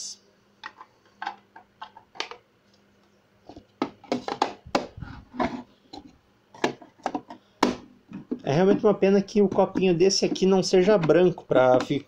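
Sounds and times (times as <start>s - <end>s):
mugs clicking and knocking on table: 3.8s - 5.5s, 6.6s - 12.0s.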